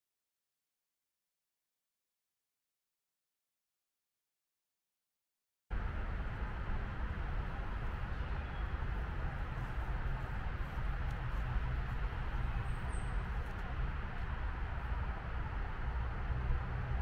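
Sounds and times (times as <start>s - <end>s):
low outdoor rumble and hiss: 5.7s - 17.0s.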